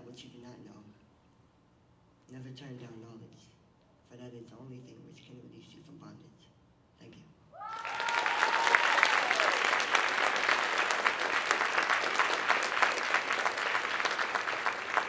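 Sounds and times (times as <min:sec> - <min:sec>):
audience applauding: 0:07.6 - 0:15.0
high call from crowd: 0:07.6 - 0:15.0.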